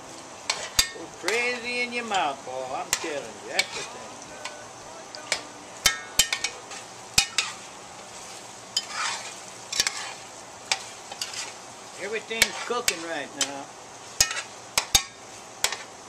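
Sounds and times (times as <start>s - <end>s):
frying sizzle: 0.0s - 16.0s
metal spoon clinking on pot: 5.3s - 6.6s
spoon scraping pot bottom: 8.8s - 11.6s.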